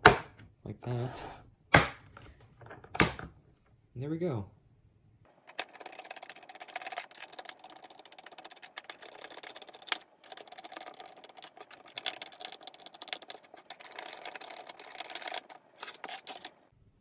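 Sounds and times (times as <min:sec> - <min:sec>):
screwdriver clicking and plastic rattling: 0:05.4 - 0:16.5.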